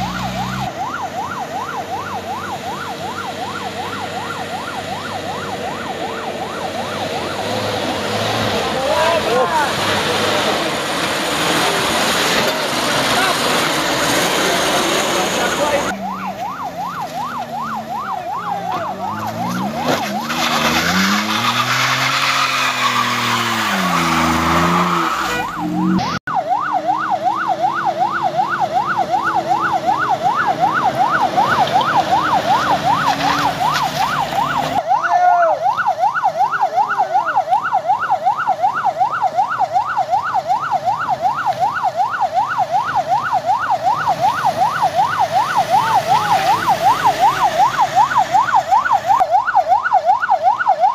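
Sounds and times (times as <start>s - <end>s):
vehicle engine revving: 0.0s - 0.8s, 2.4s - 26.2s, 28.6s - 34.8s
electronic siren yelping: 0.0s - 9.7s, 15.5s - 50.9s.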